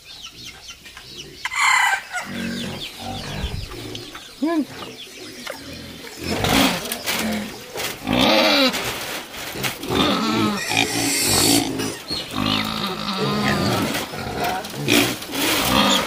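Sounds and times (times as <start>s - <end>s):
pigs squealing: 5.2s - 16.0s.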